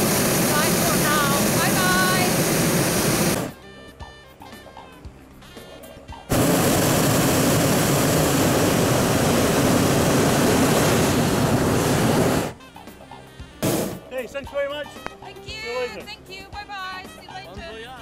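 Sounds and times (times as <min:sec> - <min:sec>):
propane burner blast: 0:00.0 - 0:03.6, 0:06.3 - 0:12.6, 0:13.6 - 0:14.2.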